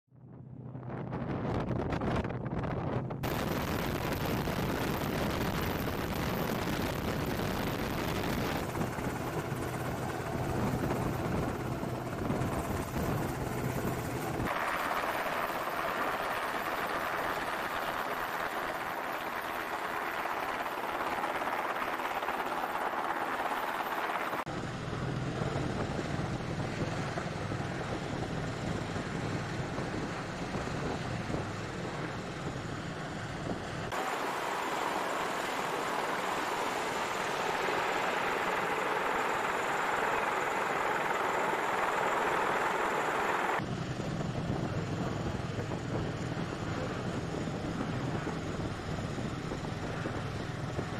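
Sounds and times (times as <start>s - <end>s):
wind: 0.1s - 50.9s
aircraft rotor noise: 1.1s - 50.9s
rushing water: 34.0s - 43.6s.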